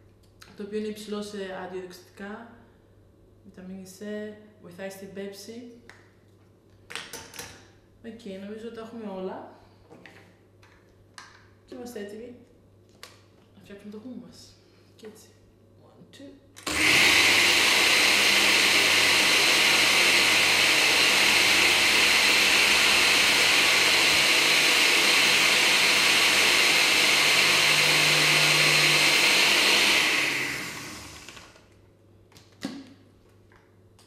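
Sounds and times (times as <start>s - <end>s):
blender running at high speed: 16.7s - 31.6s.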